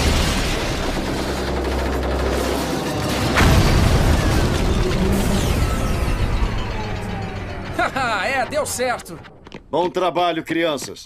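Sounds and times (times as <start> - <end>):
music: 0.0 - 9.4
loud boom: 3.1 - 9.4.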